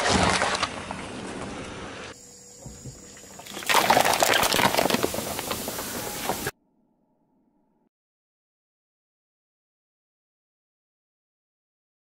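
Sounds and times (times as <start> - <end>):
liquid splashing: 0.0 - 1.3, 3.2 - 6.5
plastic cups crackling: 3.4 - 6.5
tyre crushing watermelon: 3.4 - 6.5.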